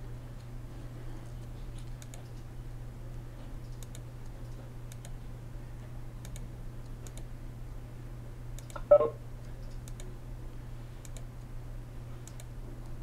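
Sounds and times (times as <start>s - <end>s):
steady low hum: 0.0s - 13.0s
computer mouse clicks: 1.3s - 2.5s, 3.6s - 5.2s, 6.2s - 7.3s, 8.6s - 8.8s, 9.4s - 10.1s, 11.0s - 11.3s, 12.2s - 13.0s.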